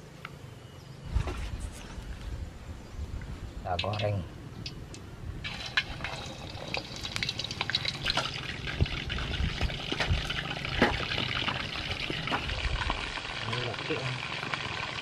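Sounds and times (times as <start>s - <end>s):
chicken frying in hot oil: 5.4s - 15.0s.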